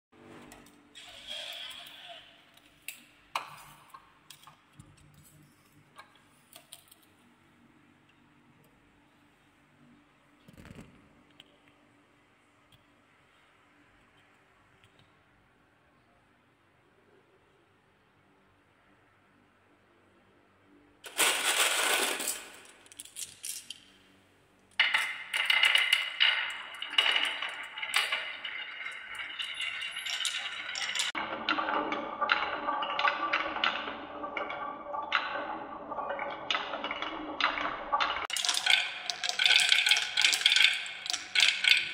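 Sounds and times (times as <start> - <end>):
marbles on wooden track: 21.1 - 23.9, 24.7 - 41.9
glass marbles clinking together: 24.8 - 31.2.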